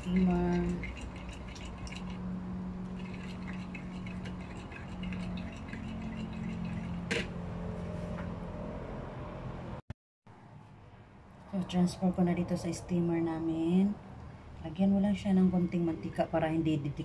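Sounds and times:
spoon stirring in ceramic bowl: 3.0s - 7.3s.

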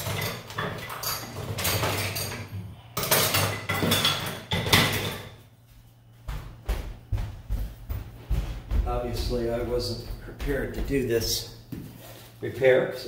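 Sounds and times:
rummaging through tools: 0.0s - 5.4s.

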